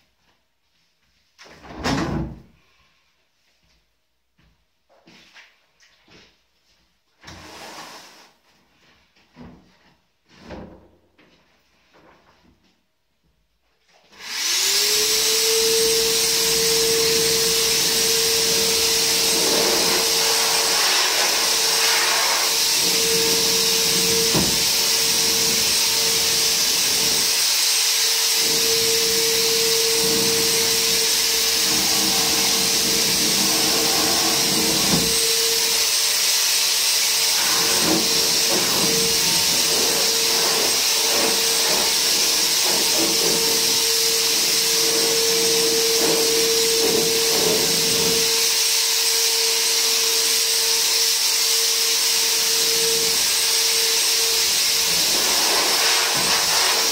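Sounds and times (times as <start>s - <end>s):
electric sprayer motor whine: 14.2s - 56.9s.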